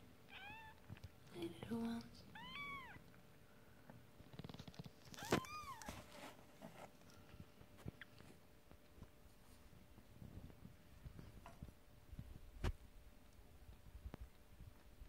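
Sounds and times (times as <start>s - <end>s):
kitten mewing: 2.3s - 3.0s
kittens rustling on towel: 3.9s - 15.0s.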